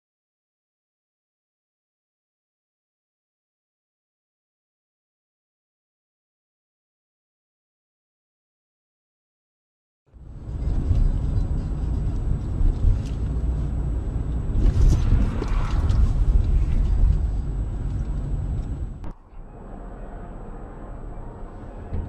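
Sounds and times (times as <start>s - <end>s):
car road and engine rumble: 10.1s - 22.0s.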